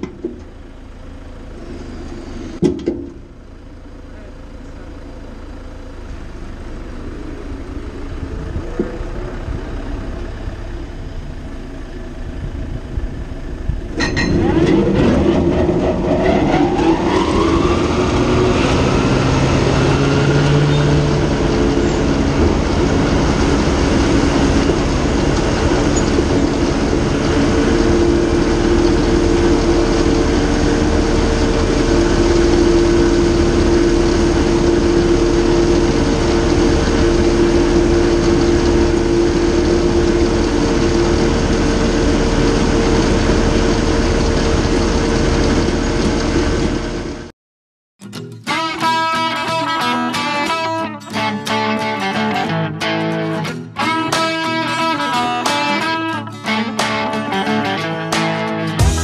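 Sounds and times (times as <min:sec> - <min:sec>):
mower whine: 0:00.0 - 0:47.3, 0:48.5 - 0:59.0
tractor engine running: 0:00.0 - 0:47.3, 0:58.6 - 0:59.0.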